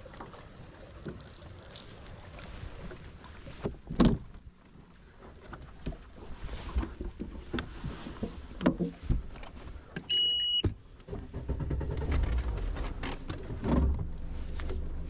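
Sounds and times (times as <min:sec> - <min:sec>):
boat engine rumbling: 0:00.0 - 0:10.0, 0:10.7 - 0:15.0
warning horn beep: 0:10.1 - 0:10.7.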